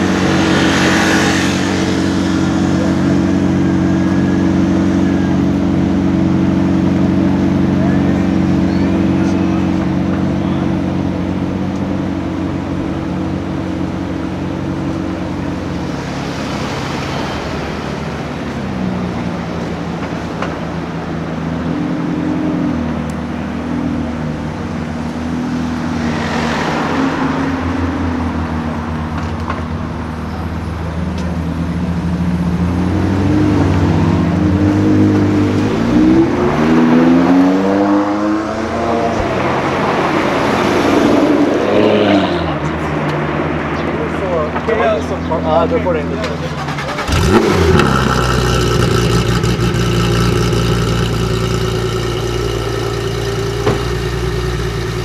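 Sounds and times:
engine revving: 0:00.0 - 0:18.4, 0:32.5 - 0:43.6, 0:46.0 - 0:55.0
car passing: 0:00.0 - 0:55.0
sports car engines idling: 0:01.5 - 0:26.1, 0:27.6 - 0:35.9, 0:42.4 - 0:55.0.

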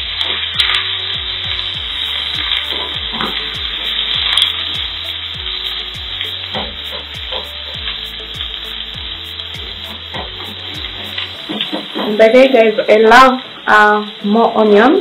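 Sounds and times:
onions sizzling in oil: 0:00.0 - 0:15.0
spatula stirring in a pan: 0:01.9 - 0:13.0.

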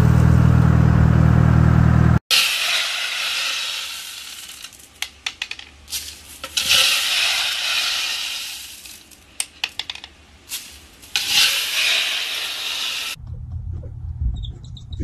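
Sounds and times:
beads rattling and pouring: 0:02.5 - 0:13.2.

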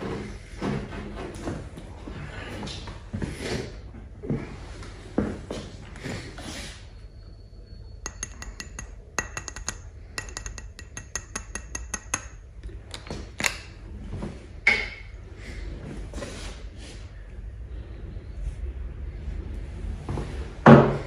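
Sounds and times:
fingers clicking on a bottle: 0:08.1 - 0:13.6.

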